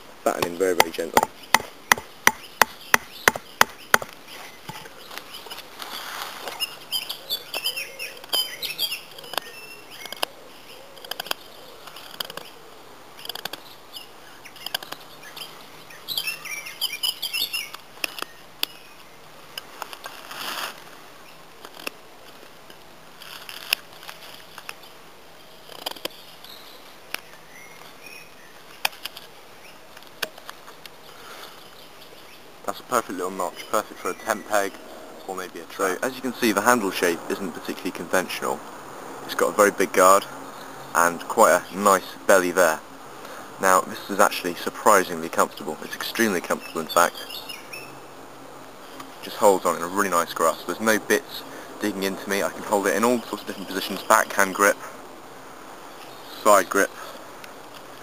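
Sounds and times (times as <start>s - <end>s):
bird chirping: 0.3s - 19.6s, 24.5s - 38.6s, 43.7s - 48.2s.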